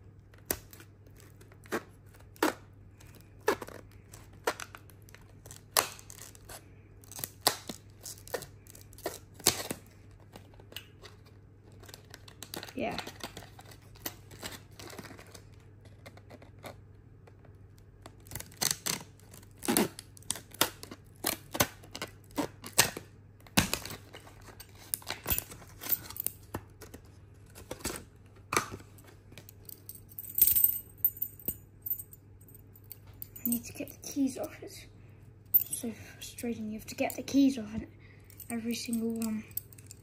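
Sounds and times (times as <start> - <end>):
keys jingling: 29.5 - 33.9, 35.5 - 35.9.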